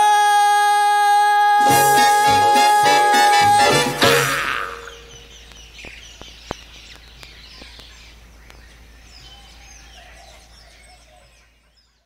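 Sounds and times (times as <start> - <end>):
birds chirping: 3.6 - 12.0.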